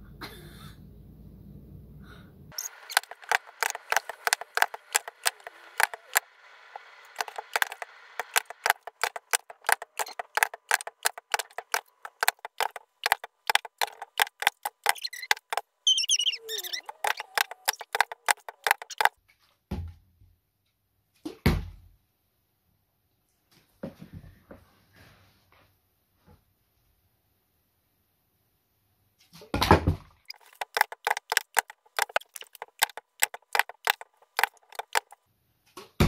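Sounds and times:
rapid clock-like ticking: 2.6s - 19.1s, 30.3s - 35.2s
dull thumps: 7.1s - 19.1s.

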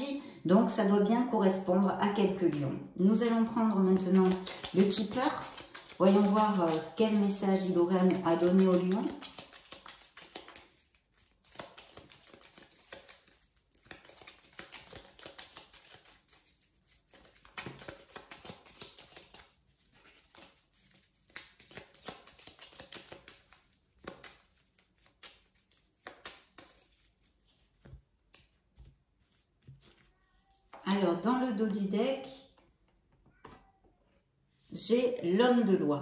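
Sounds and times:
cards being shuffled by hand: 3.5s - 31.0s.

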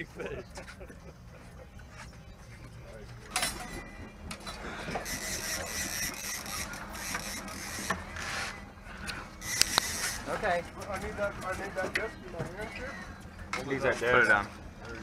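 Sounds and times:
fishing reel whirring: 5.0s - 8.0s, 9.4s - 10.2s.

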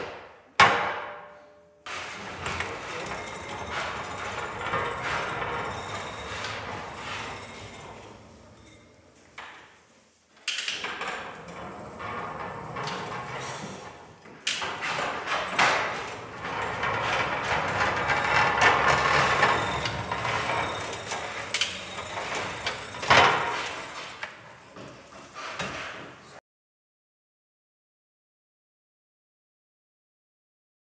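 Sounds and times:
pallet stacker driving: 1.9s - 9.6s, 11.1s - 26.2s.

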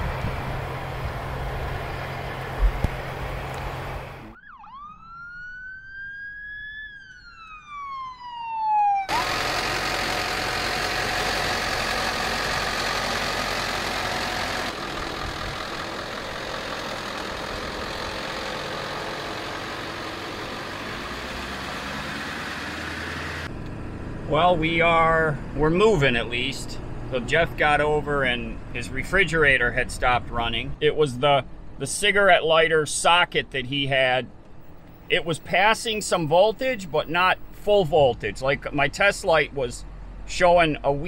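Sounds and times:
vehicle noise rushing: 0.0s - 31.8s
ambulance siren wailing: 4.1s - 13.2s.

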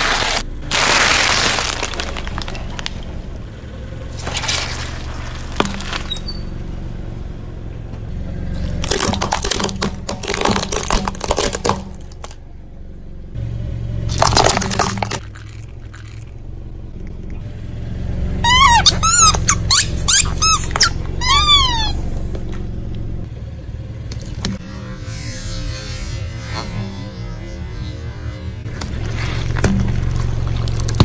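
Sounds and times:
tyre crushing toys: 0.0s - 3.3s, 4.1s - 6.3s, 8.6s - 12.4s, 14.1s - 16.4s, 28.7s - 31.0s
low car rumble: 0.0s - 31.0s
squeaky toys squealing: 18.4s - 22.1s.

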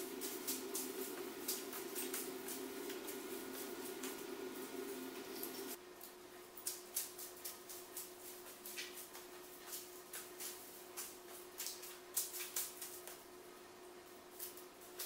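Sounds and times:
videotape rustling and crackling: 0.0s - 5.8s, 6.6s - 13.3s
steady low hum: 0.0s - 6.6s.

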